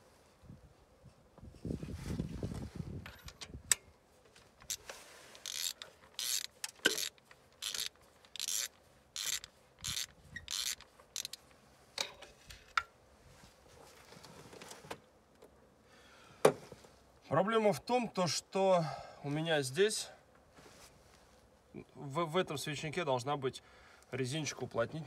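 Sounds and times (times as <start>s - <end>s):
ratchet wrench clicking: 5.4s - 11.4s.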